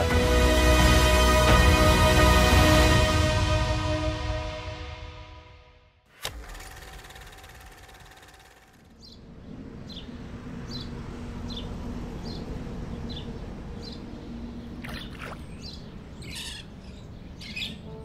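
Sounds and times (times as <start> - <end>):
bird chirping: 8.9 - 18.0.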